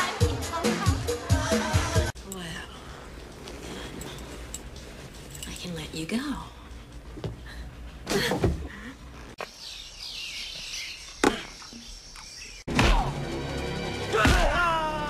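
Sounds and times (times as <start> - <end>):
dramatic music: 12.7 - 15.0.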